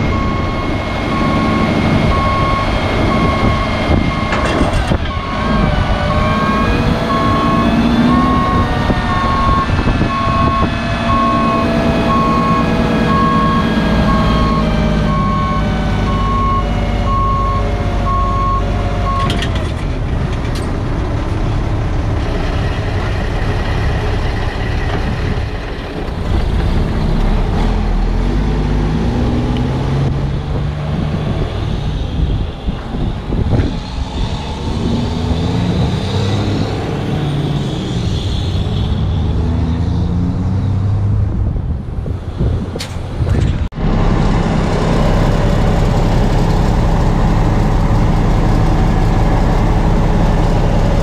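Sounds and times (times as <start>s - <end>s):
warning alarm beeping: 0.0s - 4.4s, 5.1s - 19.4s
diesel truck engine running: 0.0s - 51.0s.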